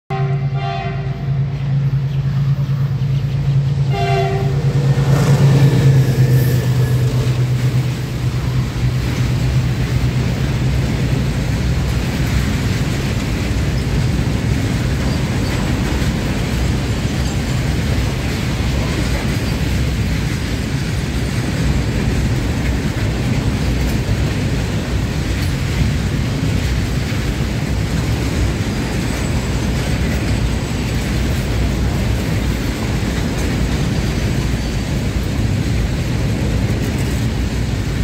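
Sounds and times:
locomotive horn blasts: 0.1s - 3.0s, 3.8s - 7.9s
locomotive low drone: 0.1s - 38.0s
train wheels rolling on rails: 0.1s - 38.0s.

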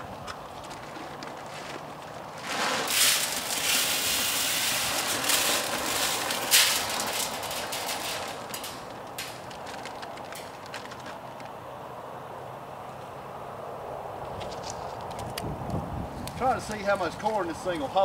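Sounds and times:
corn kernels pouring into barrel: 2.4s - 10.5s.

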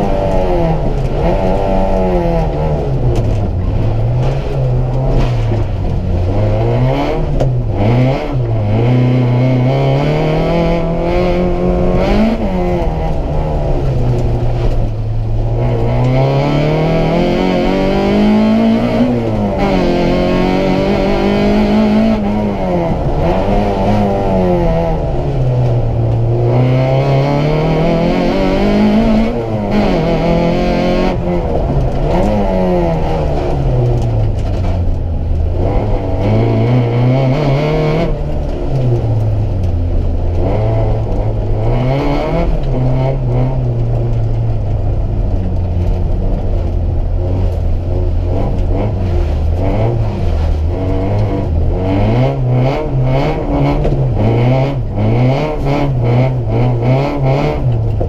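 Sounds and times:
car knocks and rattles: 0.0s - 9.1s, 10.5s - 58.0s
car engine revving from cabin: 0.0s - 45.2s, 45.8s - 58.0s.

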